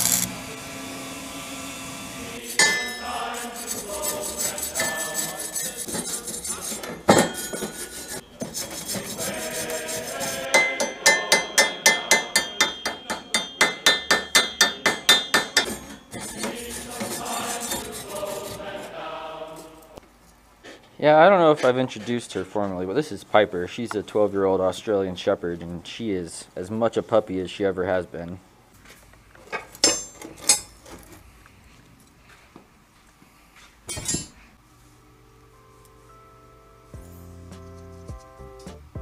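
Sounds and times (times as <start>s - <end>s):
hammer striking steel plate: 2.5s - 3.4s, 6.8s - 9.5s, 10.2s - 17.1s.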